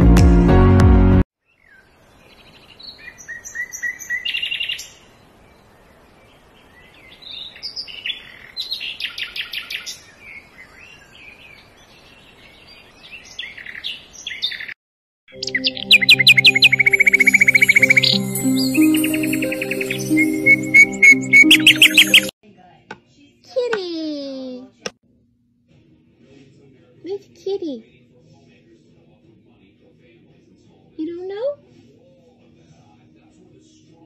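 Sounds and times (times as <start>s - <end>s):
music: 0.0s - 1.2s, 15.3s - 22.3s
songbird singing: 1.4s - 22.3s.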